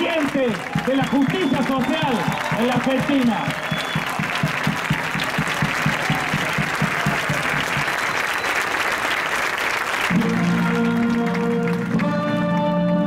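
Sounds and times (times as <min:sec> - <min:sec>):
crowd applauding and cheering: 0:00.0 - 0:13.0
music with long held notes: 0:10.1 - 0:13.0.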